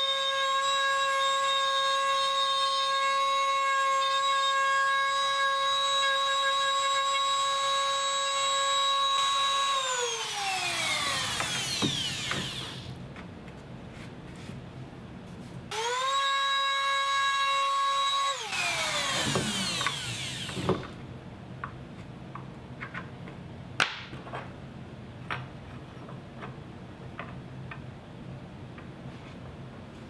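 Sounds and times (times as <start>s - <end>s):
router whining: 4.0s - 13.0s, 15.7s - 21.0s.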